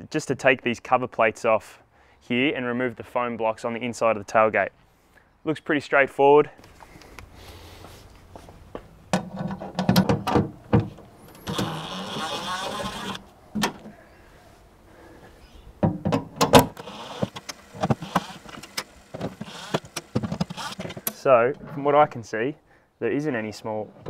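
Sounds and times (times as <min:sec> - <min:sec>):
clicks and knocks of panels: 0:09.1 - 0:11.7, 0:13.5 - 0:14.0, 0:15.8 - 0:16.8
power driver whirring: 0:11.3 - 0:13.2, 0:16.6 - 0:21.2.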